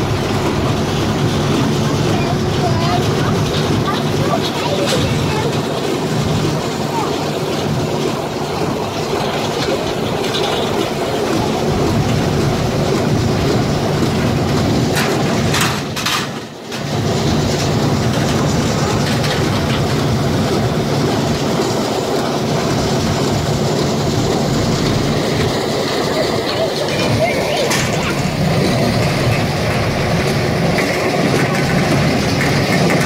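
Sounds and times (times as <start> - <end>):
baler machine hum: 0.0 - 33.0
metal clatter: 8.5 - 33.0.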